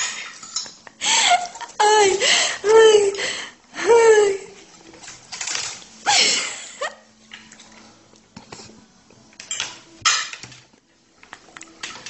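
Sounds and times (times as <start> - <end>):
cutlery and dishes clinking: 0.0 - 1.8, 4.7 - 6.0, 9.2 - 12.0.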